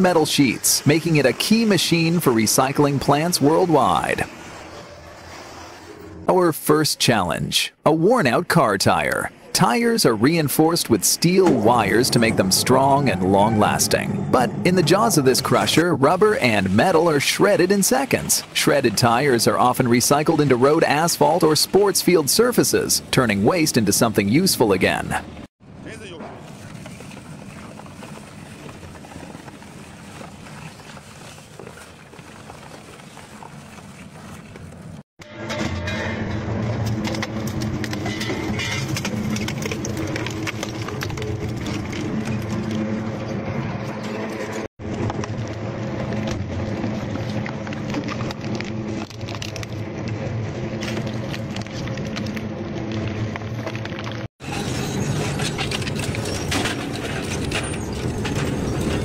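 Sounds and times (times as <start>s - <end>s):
tire cracking in shredder: 36.6s - 43.2s, 44.8s - 59.0s
plastic cracking and crunching: 45.0s - 49.9s.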